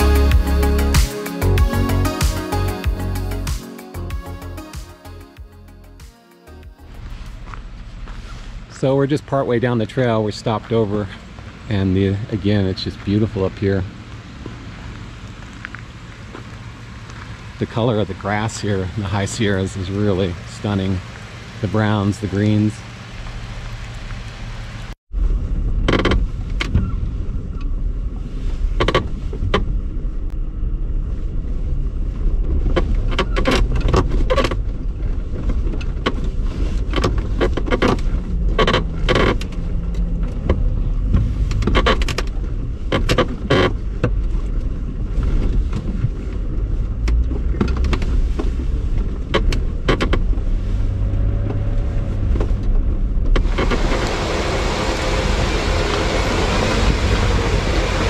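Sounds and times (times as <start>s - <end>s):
vehicle engine and tyres rumbling: 0.0s - 58.0s
knocks and rattles of body: 32.4s - 54.0s.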